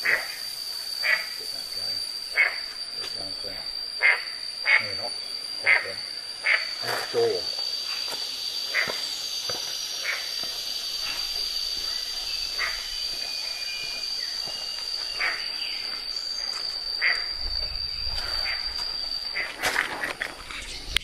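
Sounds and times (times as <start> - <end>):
cicada droning: 0.0 - 21.0.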